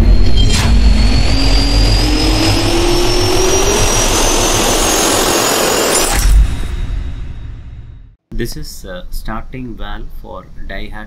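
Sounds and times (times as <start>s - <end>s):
jet engine spooling up: 0.0s - 8.0s
sharp whoosh: 0.0s - 8.1s.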